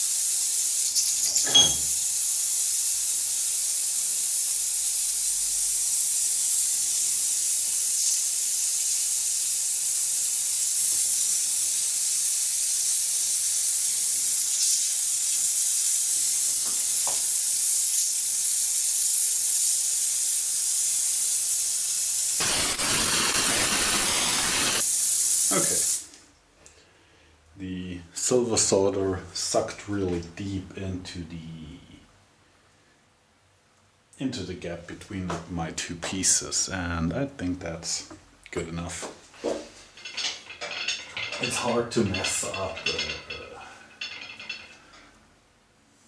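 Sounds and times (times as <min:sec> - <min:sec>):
gas torch flame hissing: 0:00.0 - 0:26.2, 0:39.4 - 0:44.8.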